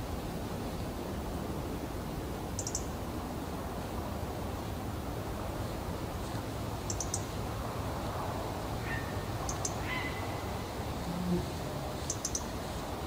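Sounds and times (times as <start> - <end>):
robin calling in high ticks: 2.6 - 2.9, 6.9 - 7.3, 8.8 - 10.2, 12.0 - 12.5.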